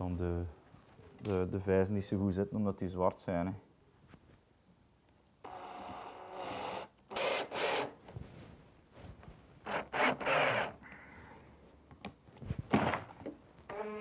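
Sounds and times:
drill driving screws into plywood: 5.4s - 8.0s, 9.6s - 10.8s, 13.7s - 14.0s.

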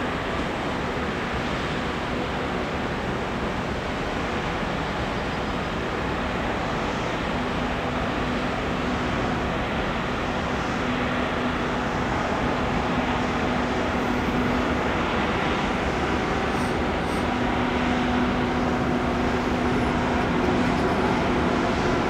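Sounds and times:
low engine hum: 10.6s - 22.0s.

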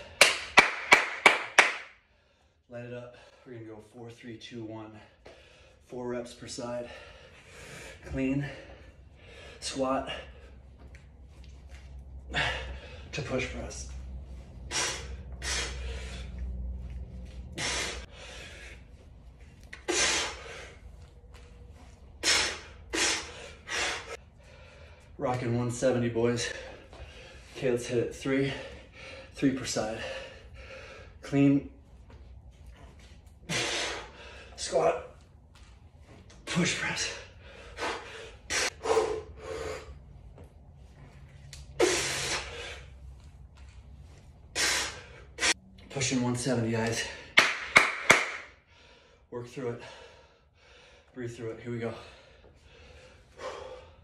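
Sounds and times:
man breathing forcefully: 5.1s - 5.9s, 6.6s - 25.2s, 26.3s - 31.8s, 33.2s - 35.8s, 36.8s - 45.6s, 46.9s - 51.2s, 51.8s - 54.0s
man exhaling forcefully: 14.6s - 16.4s, 17.5s - 18.8s, 19.8s - 20.8s, 22.2s - 24.2s, 33.5s - 34.5s, 41.8s - 42.8s, 44.5s - 45.6s.

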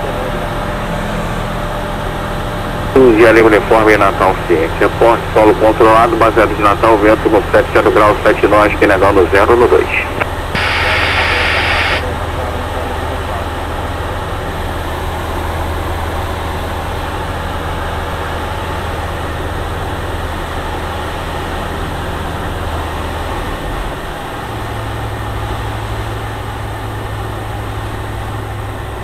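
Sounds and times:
aircraft engine and propeller droning: 0.0s - 29.0s.

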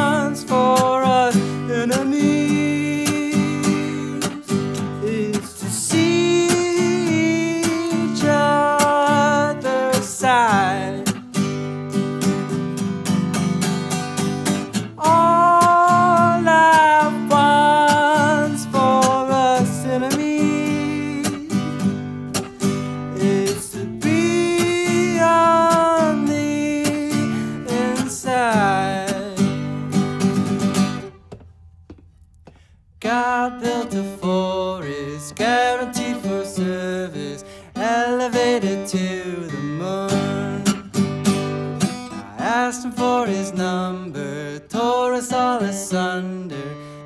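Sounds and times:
man singing: 0.0s - 11.2s, 14.7s - 22.0s, 23.0s - 30.1s, 33.0s - 40.9s, 42.1s - 47.0s
strummed acoustic guitar: 0.0s - 31.5s, 33.0s - 47.0s.

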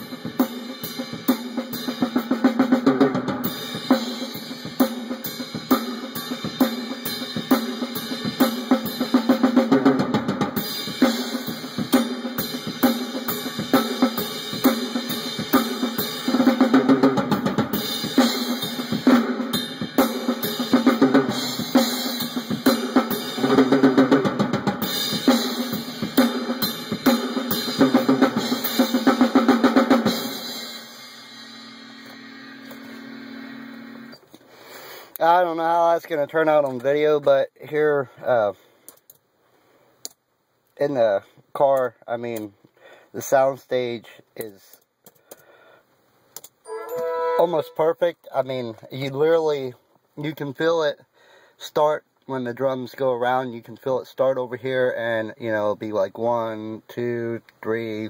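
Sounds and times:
cymbal hits: 30.1s - 33.5s.

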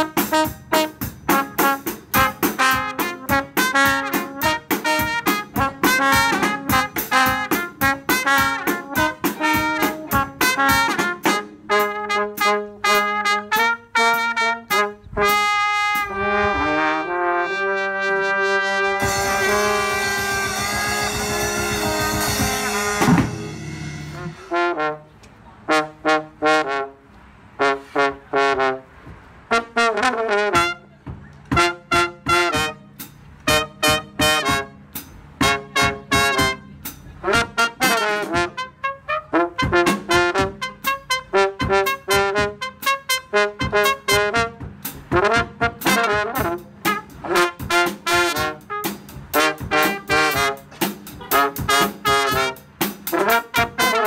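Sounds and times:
drum kit: 0.0s - 16.6s, 18.8s - 24.9s, 30.6s - 38.8s, 39.5s - 54.0s
baritone horn: 0.0s - 54.0s
trumpet riffs: 0.0s - 54.0s
cymbal wash: 19.1s - 24.5s.

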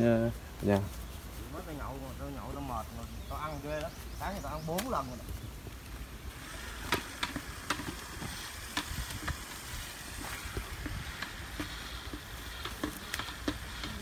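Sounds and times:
line clicking and crackling: 2.5s - 14.0s
wind rumble on microphone: 4.0s - 11.7s.

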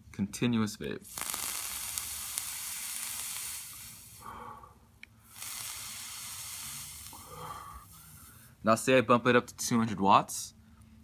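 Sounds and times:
vape coil sizzling: 1.1s - 4.3s, 5.2s - 8.0s.

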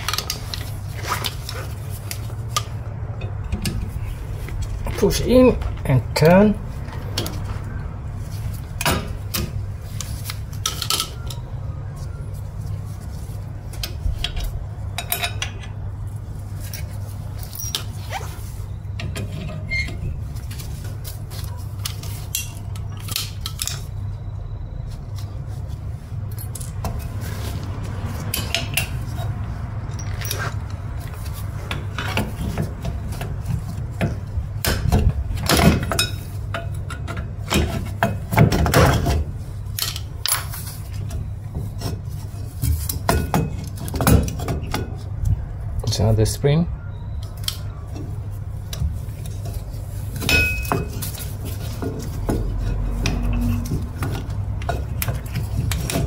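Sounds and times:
metal brake parts clinking: 16.6s - 18.2s, 28.3s - 32.6s, 38.9s - 45.1s, 49.4s - 56.0s
low hum: 52.3s - 54.6s.

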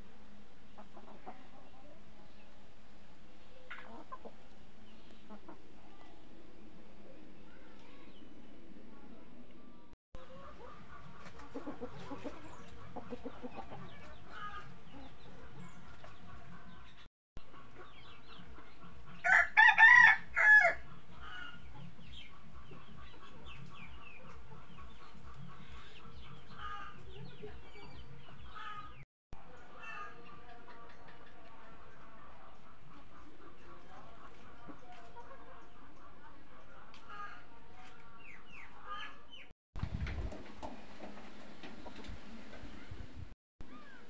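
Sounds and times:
chickens clucking: 0.0s - 8.2s, 10.2s - 44.0s
rooster crowing: 19.2s - 20.8s.

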